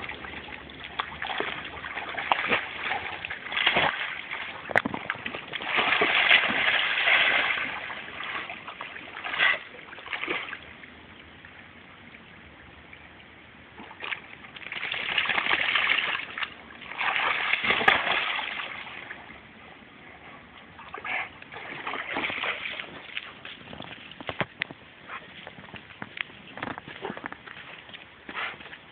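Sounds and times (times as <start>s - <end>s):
dog splashing in water: 0.0s - 10.6s, 13.8s - 19.2s, 20.9s - 24.5s.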